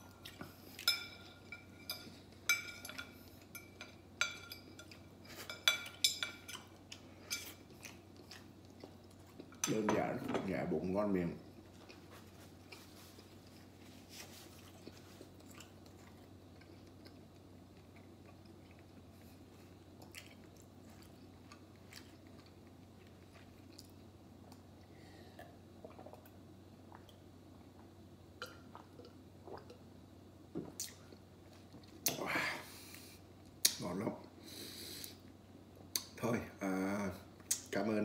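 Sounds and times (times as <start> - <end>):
person chewing: 6.5 - 9.6, 11.7 - 24.7, 25.4 - 27.8, 30.7 - 32.2.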